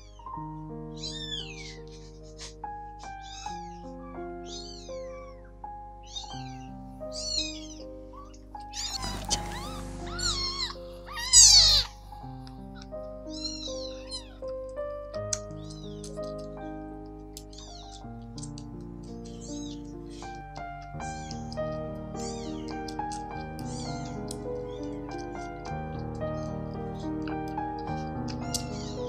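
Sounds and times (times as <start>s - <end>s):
soft music of held notes: 0.0s - 29.0s
kittens mewing: 1.0s - 14.6s, 15.4s - 29.0s.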